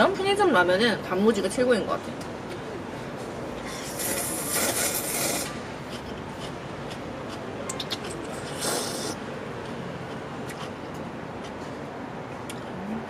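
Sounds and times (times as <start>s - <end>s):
person slurping broth: 3.6s - 6.5s, 7.8s - 9.2s
person slurping noodles: 3.6s - 6.6s, 7.3s - 9.2s
wet mouth clicks: 3.7s - 9.2s.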